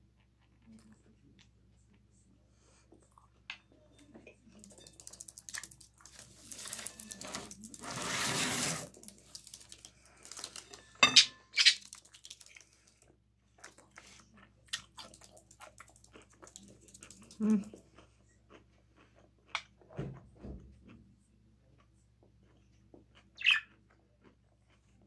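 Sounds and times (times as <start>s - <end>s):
rustling and scraping on table: 6.1s - 9.0s.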